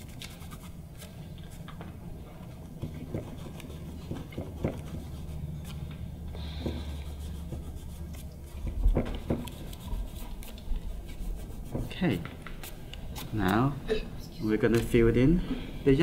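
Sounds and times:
low steady hum: 0.0 - 16.0
fingertips rubbing paper: 3.0 - 5.8, 6.8 - 13.5.

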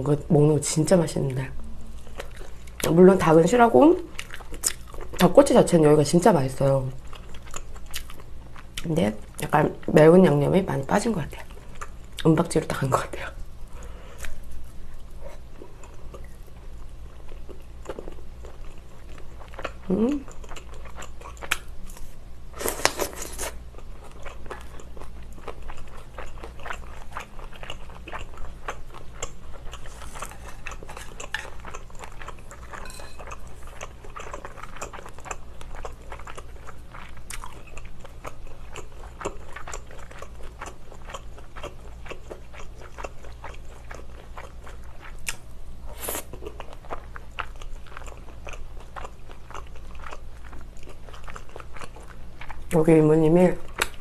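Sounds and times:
low electrical hum: 0.0 - 54.0
person biting and chewing: 25.7 - 36.5.

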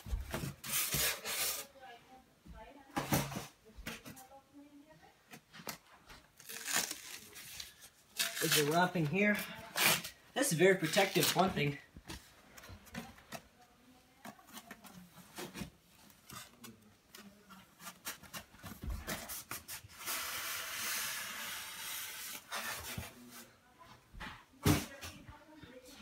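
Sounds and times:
plastic wrapping rustling: 5.5 - 13.3
small taps and crinkles: 12.0 - 19.2.

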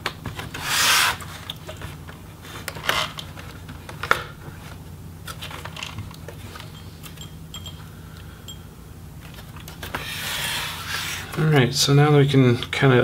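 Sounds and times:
plastic rubbing: 9.3 - 11.7.

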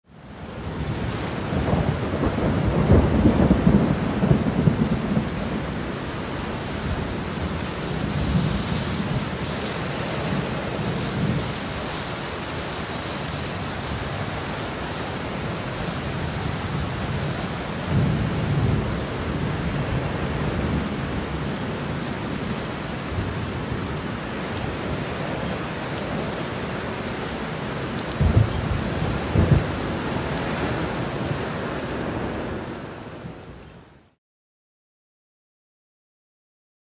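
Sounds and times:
steady rain: 0.1 - 34.2
thunder rumbling: 0.6 - 12.2, 13.2 - 33.4
sharp thunder clap: 28.2 - 29.7.

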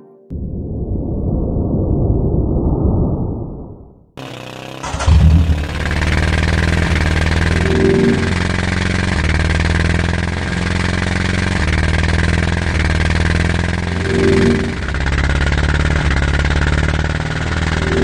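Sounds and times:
vehicle engine running: 4.2 - 18.0.

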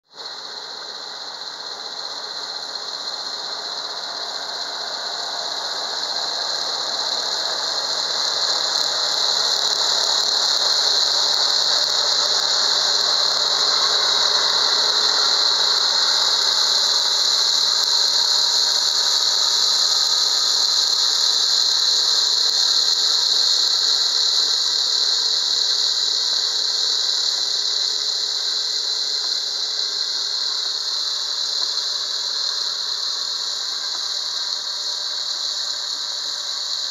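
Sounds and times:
steady high whine: 0.0 - 36.9.

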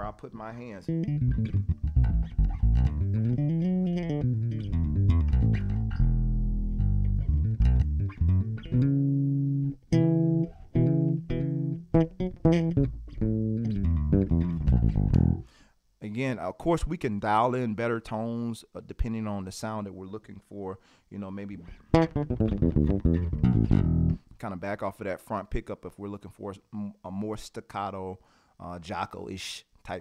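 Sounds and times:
electric bass played fingerstyle: 0.7 - 15.5, 21.6 - 24.3.

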